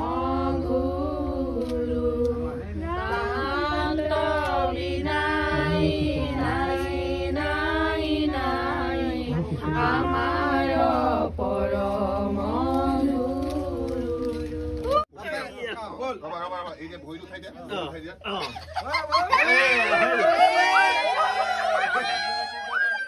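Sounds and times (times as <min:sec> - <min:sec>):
women singing in unison: 0:00.0 - 0:15.0.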